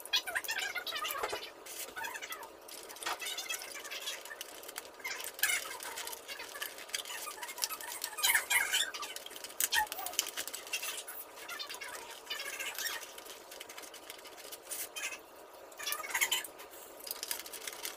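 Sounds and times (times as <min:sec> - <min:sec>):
foam puzzle pieces clicking together: 0:02.1 - 0:11.1.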